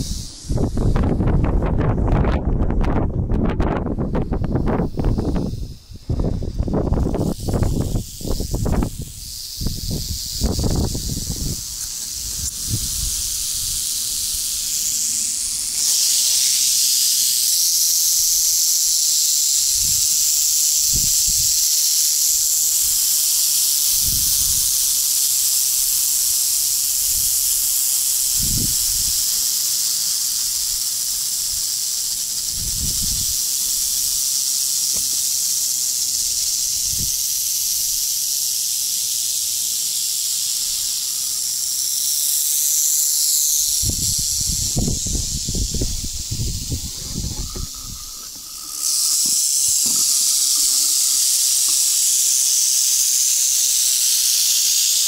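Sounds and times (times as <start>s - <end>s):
rattlesnakes rattling: 0.0s - 55.0s.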